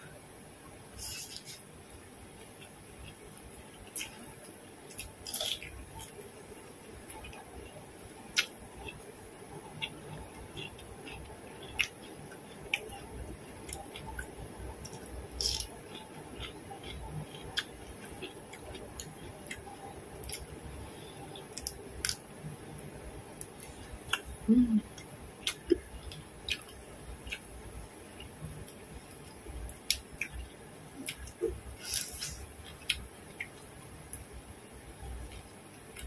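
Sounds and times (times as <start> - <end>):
chewing with crisp clicks: 2.4 - 22.8, 23.4 - 34.3, 35.2 - 36.0
person humming mm: 24.4 - 24.9.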